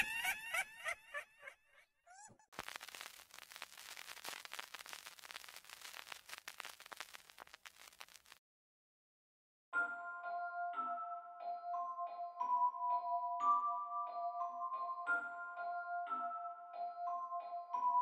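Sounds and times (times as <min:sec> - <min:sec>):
dense fine crackling: 0:02.5 - 0:08.4.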